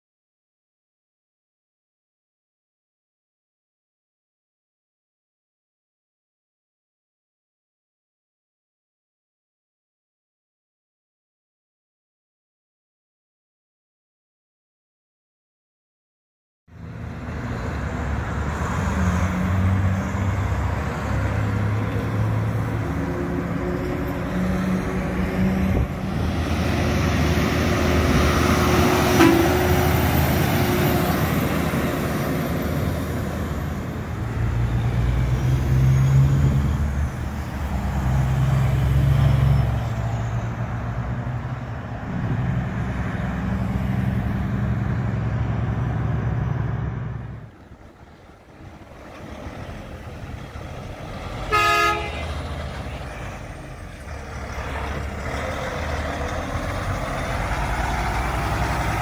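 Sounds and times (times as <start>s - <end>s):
trucks and cars passing: 16.7s - 59.0s.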